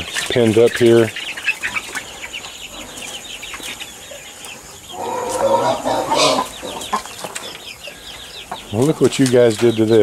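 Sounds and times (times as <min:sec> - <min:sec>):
chickens chirping: 0:00.0 - 0:10.0.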